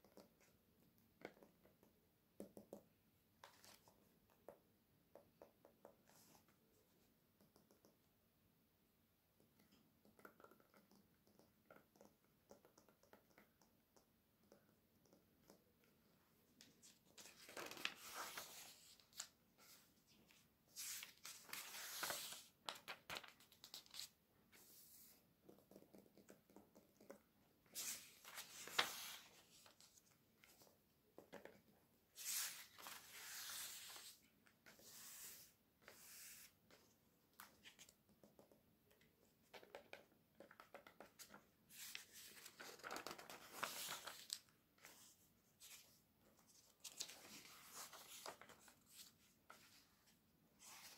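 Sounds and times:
hand brushing over pages: 0:17.2 - 0:22.5, 0:27.7 - 0:29.9, 0:32.1 - 0:36.5, 0:41.7 - 0:50.9
magazine pages rustling: 0:20.8 - 0:24.1, 0:27.8 - 0:29.9, 0:41.2 - 0:45.9, 0:46.6 - 0:49.8.

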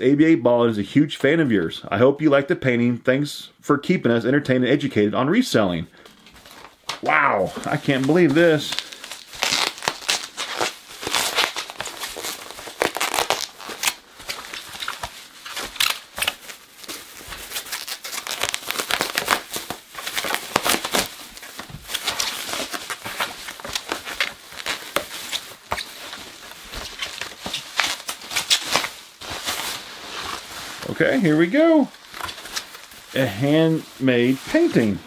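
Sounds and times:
bubble wrap crinkling: 0:06.0 - 0:35.0
tape peeling off: 0:07.6 - 0:30.9.

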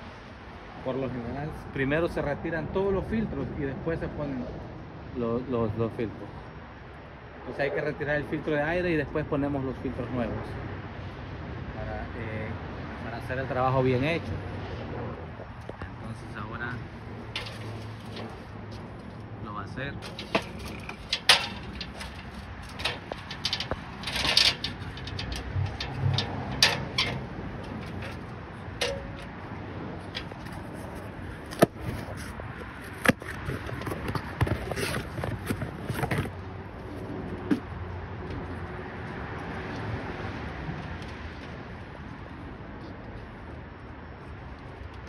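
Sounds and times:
rustling: 0:16.9 - 0:19.3, 0:20.0 - 0:36.3
aluminium ladder shifted: 0:17.2 - 0:19.3, 0:20.0 - 0:36.3
metallic clicks and clanks: 0:17.3 - 0:18.5, 0:20.0 - 0:31.0.

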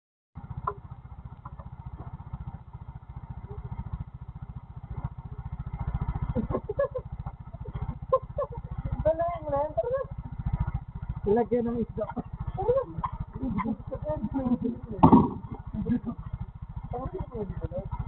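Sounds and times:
scooter engine idling: 0:00.4 - 0:18.0.

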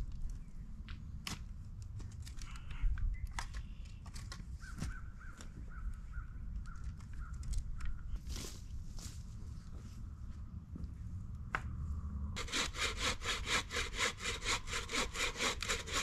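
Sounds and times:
steady low rumble: 0:07.5 - 0:12.5.

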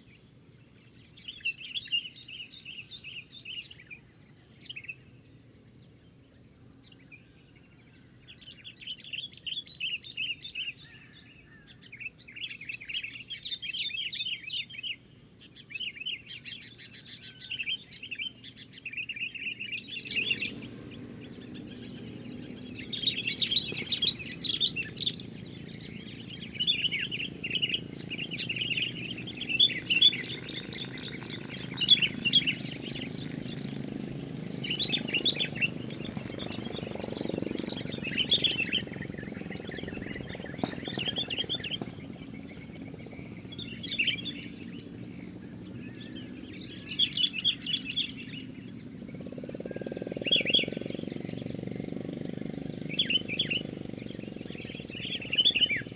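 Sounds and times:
bulbuls calling: 0:15.8 - 0:55.9
low background rumble: 0:20.4 - 0:46.9.

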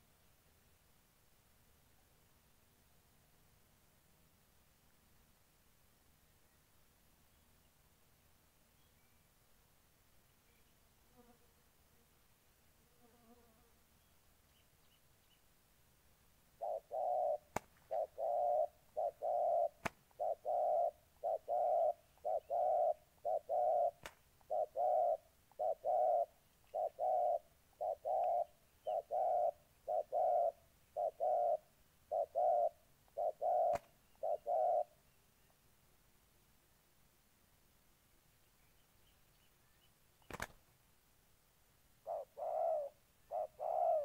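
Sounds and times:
doves cooing: 0:16.6 - 0:35.0, 0:42.0 - 0:44.0.

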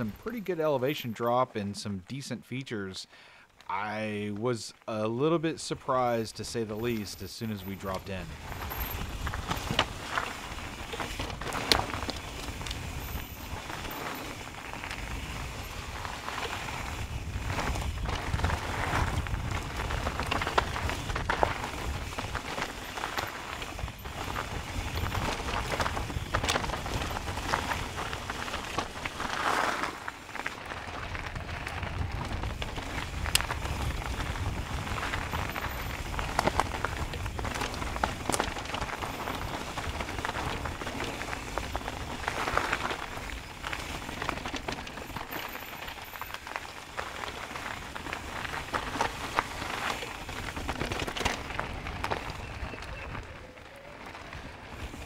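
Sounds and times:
bike tyres crunching on dirt: 0:00.0 - 0:01.4, 0:03.2 - 0:55.0
bike clicks and rattles: 0:06.7 - 0:55.0
wind rumble on microphone: 0:15.0 - 0:22.6, 0:30.7 - 0:43.5.

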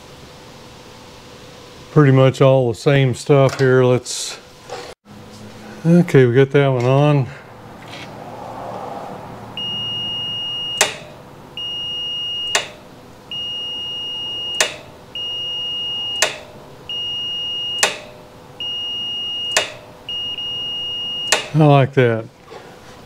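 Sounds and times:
multimeter high beeps: 0:09.6 - 0:21.6
switch click: 0:10.8 - 0:11.1, 0:12.5 - 0:12.8, 0:14.5 - 0:14.9, 0:16.2 - 0:16.5, 0:17.8 - 0:18.2, 0:19.5 - 0:19.8, 0:21.3 - 0:21.6.

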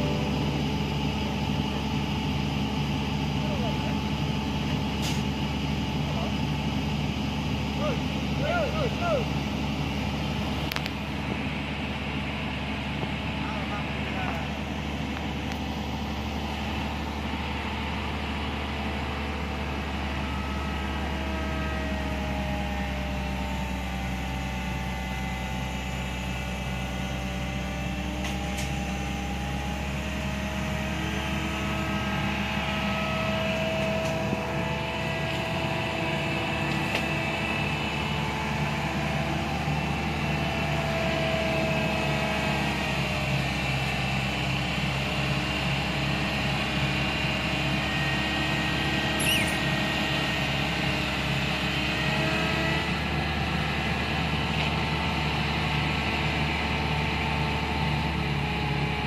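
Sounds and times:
hydraulics whining: 0:00.0 - 0:16.9, 0:48.9 - 0:50.8
diesel engine running: 0:00.0 - 0:59.0.

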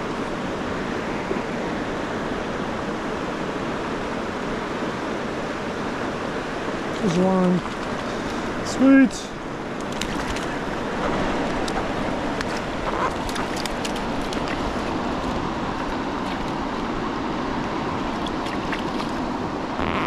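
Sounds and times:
river current rushing: 0:00.0 - 0:20.0
small clicks and splashes in water: 0:06.9 - 0:08.5, 0:09.8 - 0:10.6, 0:12.4 - 0:16.6, 0:18.1 - 0:19.2.

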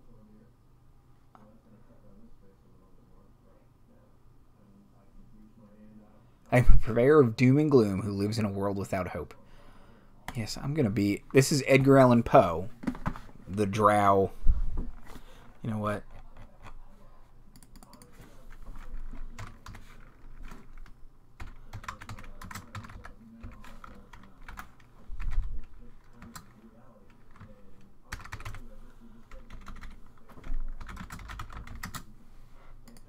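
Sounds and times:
computer keyboard typing: 0:17.5 - 0:28.7, 0:29.3 - 0:32.1.

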